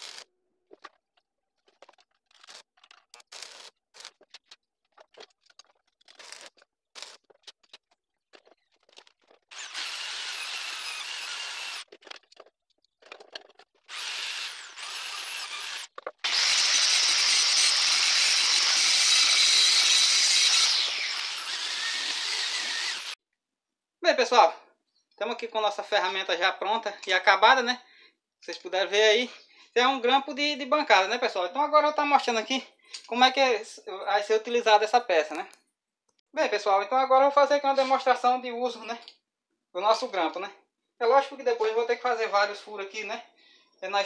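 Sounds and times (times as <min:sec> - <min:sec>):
angle grinder grinding steel: 0:09.5 - 0:11.9, 0:13.8 - 0:23.2
electric drill running: 0:09.5 - 0:11.9, 0:13.9 - 0:23.2.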